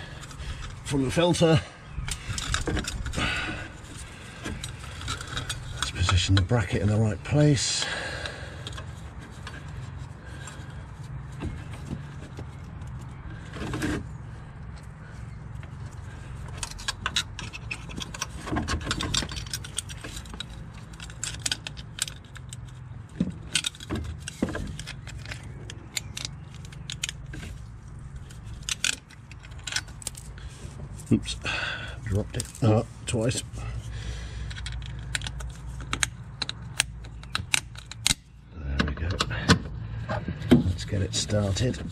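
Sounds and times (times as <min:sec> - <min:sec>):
metal bracket clicking and jangling: 0:00.1 - 0:07.8, 0:15.5 - 0:31.2, 0:32.1 - 0:38.4.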